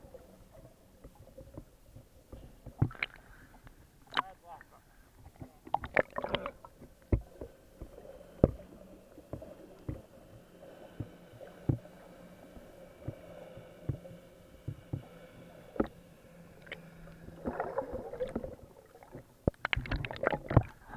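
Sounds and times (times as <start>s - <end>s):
faint steady hum: 0.0s - 20.9s
underwater knocks and clicks: 0.5s - 4.3s, 5.2s - 10.4s, 11.0s - 11.9s, 13.8s - 15.1s, 15.8s - 16.0s, 17.4s - 20.8s
bubbling and splashing: 5.7s - 10.2s, 16.6s - 20.9s.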